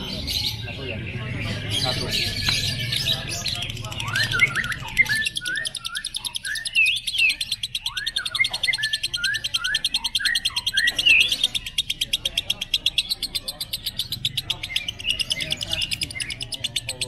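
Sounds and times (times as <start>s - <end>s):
bird chattering high clicks: 2.3s - 17.0s.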